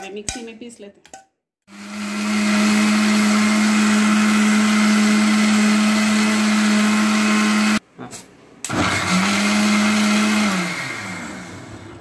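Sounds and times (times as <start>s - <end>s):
mixer grinder motor hum: 1.7s - 7.8s, 8.7s - 12.0s.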